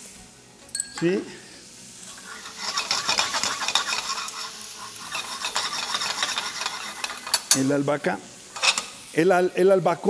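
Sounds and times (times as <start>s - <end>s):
vegetables sizzling: 1.0s - 10.0s
metal tongs scraping skillet: 2.0s - 7.8s, 8.4s - 9.1s.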